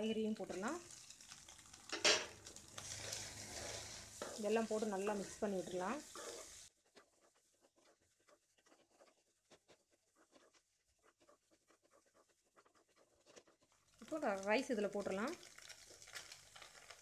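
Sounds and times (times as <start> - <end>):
wooden spatula scraping metal pan: 2.8 - 14.2.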